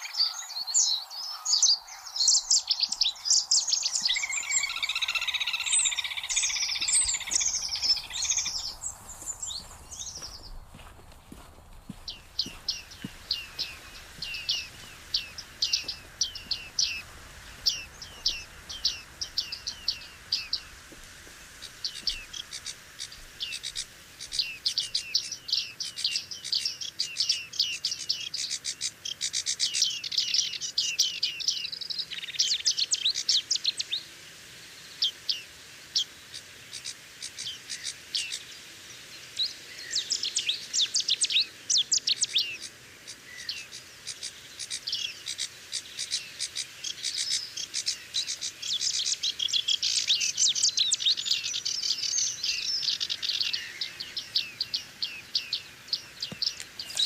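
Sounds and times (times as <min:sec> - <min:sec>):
songbirds chirping: 0:00.0 - 0:57.0.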